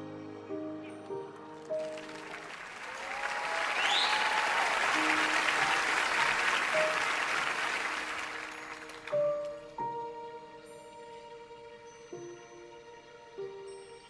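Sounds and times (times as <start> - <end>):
soft background music: 0.0 - 2.8, 4.6 - 14.0
audience applause: 1.6 - 9.6
short rising whistle: 3.6 - 4.7.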